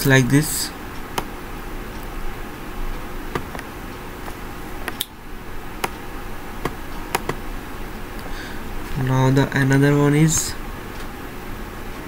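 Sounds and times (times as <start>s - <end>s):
room hiss and hum: 0.0s - 12.0s
computer mouse clicking: 6.6s - 7.4s.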